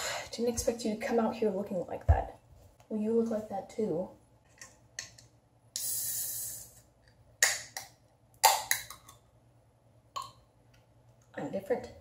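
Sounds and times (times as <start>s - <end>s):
drink can opening hiss: 5.8s - 6.8s.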